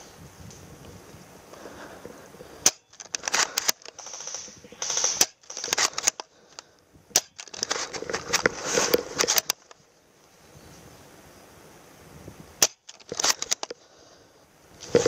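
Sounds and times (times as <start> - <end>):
airsoft rifle shot snapping: 2.6 - 6.2, 7.1 - 7.7, 12.6 - 13.7
rifle bolt clicks and rattles: 2.6 - 9.8, 12.6 - 13.8.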